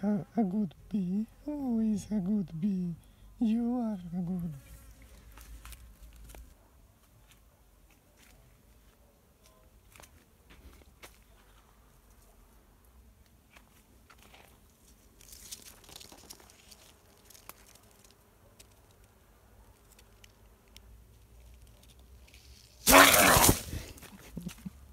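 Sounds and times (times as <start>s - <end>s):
leaves rustling against microphone: 3.5s - 8.9s, 13.4s - 24.9s.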